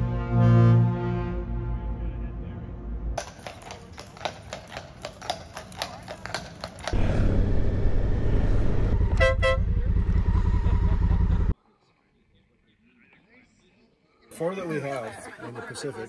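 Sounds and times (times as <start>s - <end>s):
loud low rumble: 7.0s - 11.5s
vehicle horn toots: 9.0s - 10.0s.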